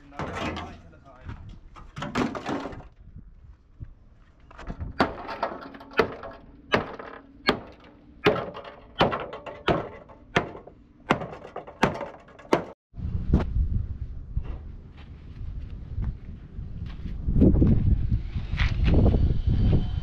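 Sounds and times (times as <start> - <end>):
hammer striking steel panel: 5.0 - 12.8.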